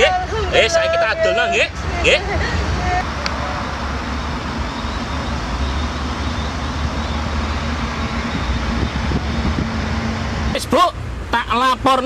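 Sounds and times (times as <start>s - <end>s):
faint engine hum: 0.0s - 12.0s
road traffic rumble: 0.0s - 12.0s.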